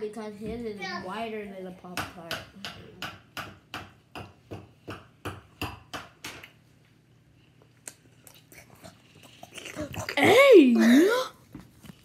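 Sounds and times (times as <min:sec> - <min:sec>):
open-mouthed chewing: 0:07.6 - 0:10.2.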